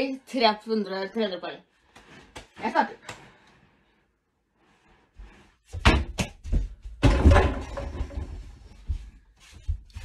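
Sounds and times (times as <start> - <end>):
small basketball thudding: 5.7 - 8.0.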